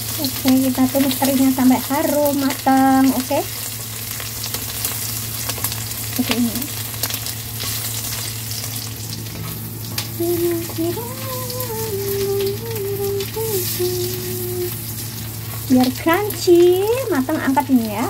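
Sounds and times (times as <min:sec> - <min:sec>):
food sizzling in hot oil: 0:00.0 - 0:18.0
person humming: 0:06.2 - 0:06.7, 0:10.2 - 0:14.8.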